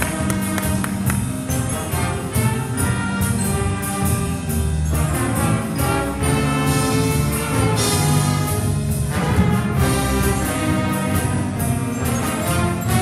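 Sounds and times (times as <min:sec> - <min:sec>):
jazz band playing: 0:00.0 - 0:13.0.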